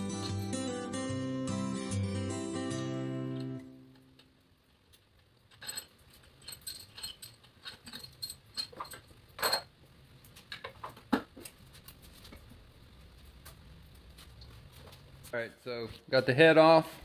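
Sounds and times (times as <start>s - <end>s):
metal tools clinking: 0.0s - 0.7s, 5.5s - 9.7s.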